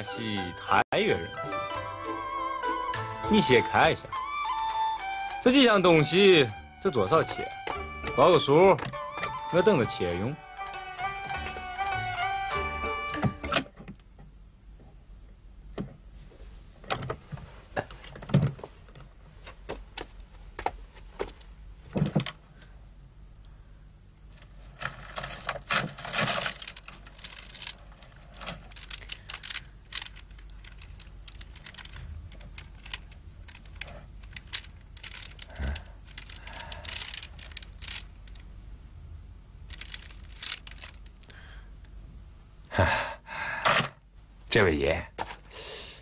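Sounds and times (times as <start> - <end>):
beads clicking and clattering: 24.4 - 38.5, 39.6 - 41.3.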